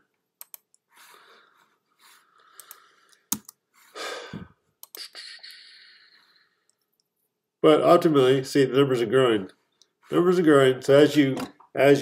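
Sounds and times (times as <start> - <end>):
computer mouse clicks: 0.4 - 0.9, 2.5 - 3.6, 4.8 - 5.0
soft breaths: 0.8 - 6.9.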